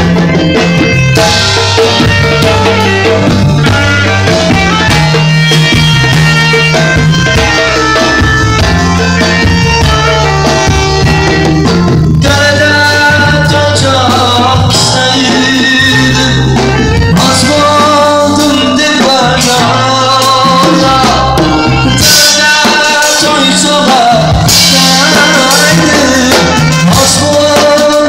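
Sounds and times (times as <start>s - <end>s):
alto saxophone melody: 0.0s - 12.2s
low bass line: 0.0s - 27.8s
drum kit with cymbals: 0.0s - 28.0s.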